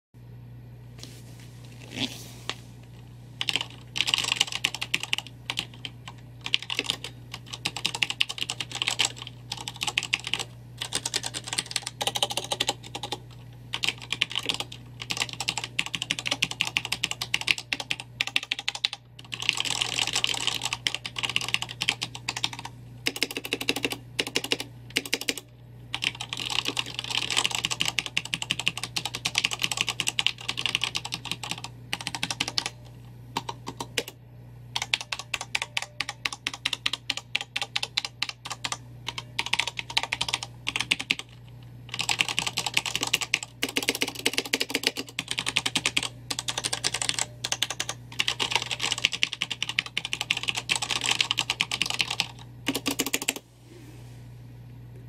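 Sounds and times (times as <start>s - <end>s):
mechanical keyboard typing: 3.4s - 34.2s, 34.8s - 53.4s.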